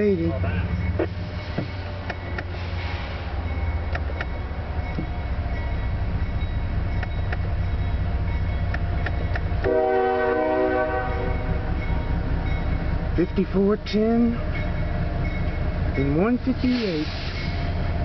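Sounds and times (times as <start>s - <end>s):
locomotive horn blast: 9.6s - 11.7s.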